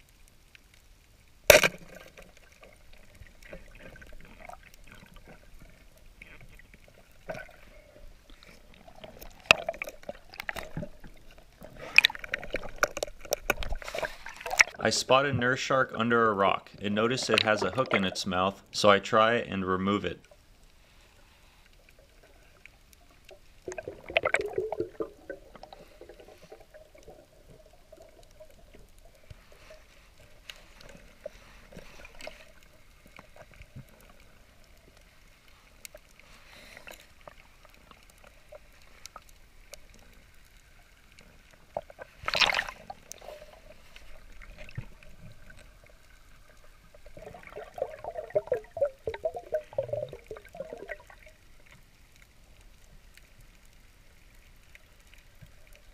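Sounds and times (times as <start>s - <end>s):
water swirling and bubbling: 0.0s - 18.7s, 20.2s - 55.9s
muffled underwater water sound: 0.0s - 55.9s.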